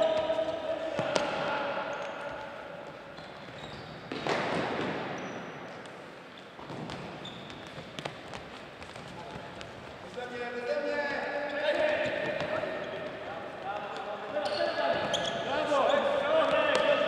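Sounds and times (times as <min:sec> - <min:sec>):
shoes squeaking on floor: 0:01.9 - 0:04.5, 0:05.1 - 0:09.8, 0:11.4 - 0:16.8.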